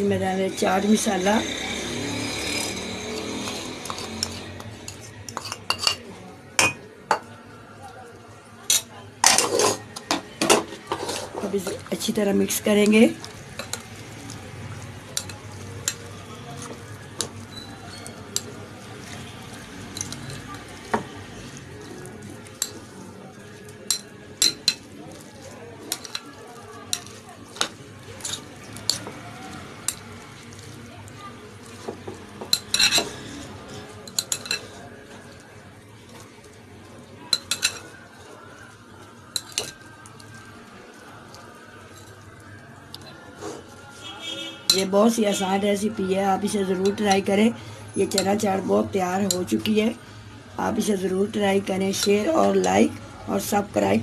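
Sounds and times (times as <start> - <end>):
spoon stirring wet mixture: 0.0 - 54.0
spoon clinking against glass: 2.6 - 6.0, 23.9 - 24.9, 32.4 - 33.2, 34.1 - 34.8, 37.3 - 38.0
china plate clinking against glass bowl: 5.3 - 6.0.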